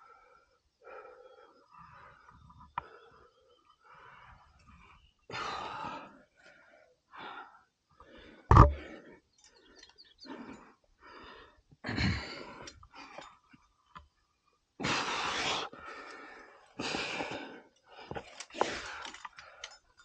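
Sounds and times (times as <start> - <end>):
heavy breathing: 14.8 - 19.9.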